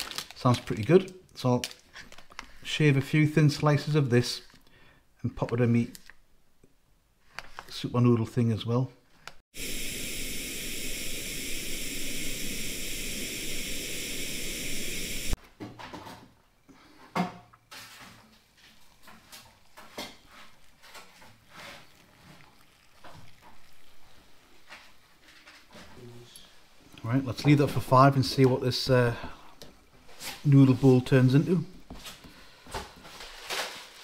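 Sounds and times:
camping stove burner hissing: 0:09.5 - 0:15.4, 0:17.9 - 0:25.2, 0:26.5 - 0:32.0
boiling water pouring: 0:09.6 - 0:15.4, 0:18.3 - 0:25.7, 0:27.3 - 0:32.0.

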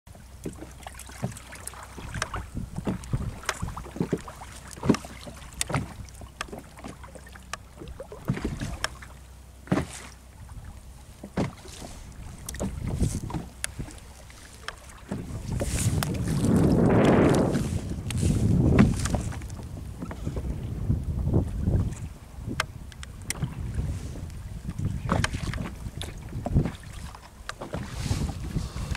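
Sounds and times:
wash of wind or water: 0:00.1 - 0:28.9
wind rumble on microphone: 0:00.2 - 0:09.0, 0:10.3 - 0:28.9
fishing gear knocks and clicks: 0:04.8 - 0:06.6, 0:16.9 - 0:20.1.

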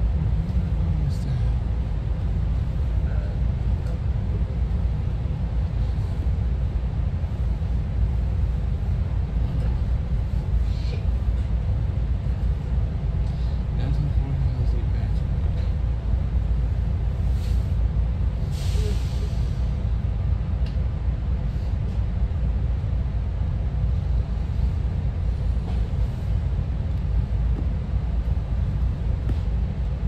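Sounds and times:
train rumbling: 0:00.0 - 0:30.0
brief hiss: 0:18.5 - 0:19.6.

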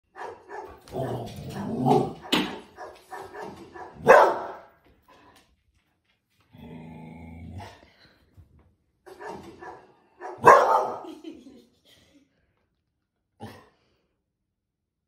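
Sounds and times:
dog barking: 0:00.1 - 0:04.8, 0:09.1 - 0:11.1.

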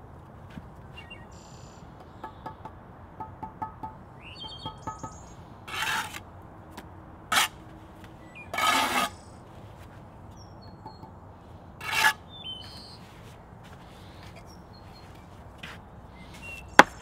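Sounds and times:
birds chirping: 0:00.8 - 0:05.6, 0:08.1 - 0:09.5, 0:10.1 - 0:17.0
trowel scraping mortar: 0:05.7 - 0:06.2, 0:07.3 - 0:07.6, 0:08.5 - 0:09.3, 0:11.8 - 0:12.2.

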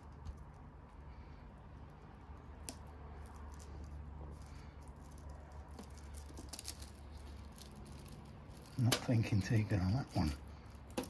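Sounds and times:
fingers handling plastic: 0:02.3 - 0:11.0.

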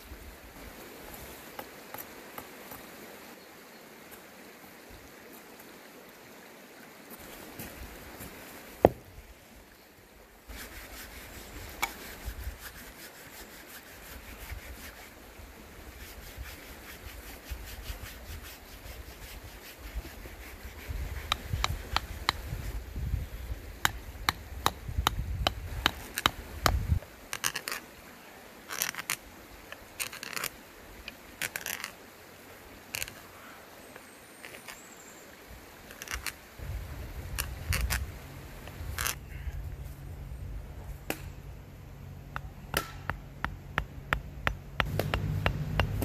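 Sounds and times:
auger scraping wood: 0:24.3 - 0:27.8, 0:28.7 - 0:29.2, 0:30.0 - 0:30.5, 0:31.4 - 0:32.0, 0:35.9 - 0:36.4, 0:37.3 - 0:39.2, 0:42.8 - 0:46.0
hand auger clicking and creaking: 0:24.3 - 0:27.8, 0:28.7 - 0:29.2, 0:30.0 - 0:30.5, 0:31.4 - 0:32.0, 0:35.9 - 0:36.4, 0:37.4 - 0:38.0, 0:38.9 - 0:39.2.

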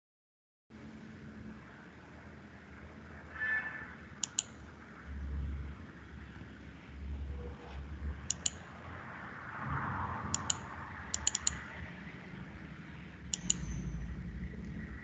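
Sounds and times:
mouse button double-clicks: 0:04.2 - 0:04.6, 0:08.3 - 0:08.6, 0:10.3 - 0:11.6, 0:13.3 - 0:13.9.

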